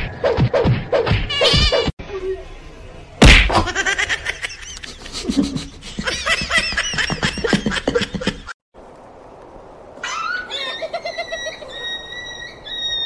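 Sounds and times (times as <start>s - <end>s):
person giggling: 3.6s - 8.5s.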